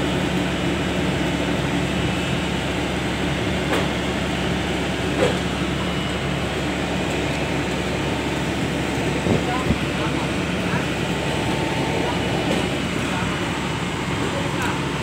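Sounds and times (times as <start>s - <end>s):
boat hoist engine drone: 0.0s - 15.0s.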